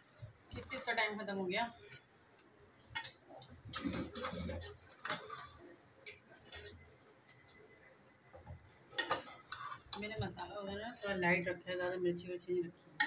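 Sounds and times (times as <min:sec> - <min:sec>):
metal spoon scraping a pot: 0:00.0 - 0:02.1, 0:03.0 - 0:05.7, 0:06.4 - 0:06.8, 0:08.4 - 0:12.2.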